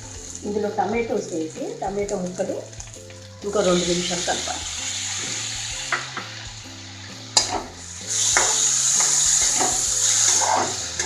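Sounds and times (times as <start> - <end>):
vegetables sizzling in oil: 0.0 - 11.0
metal spatula knocking on pan: 8.3 - 9.8.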